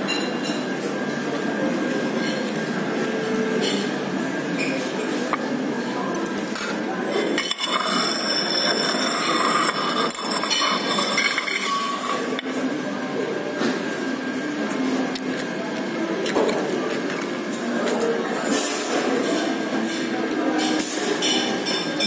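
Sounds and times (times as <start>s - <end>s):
dishes and cutlery clinking: 0.0s - 0.7s, 3.5s - 5.5s, 6.2s - 12.7s, 16.2s - 22.0s
restaurant din: 0.0s - 22.0s.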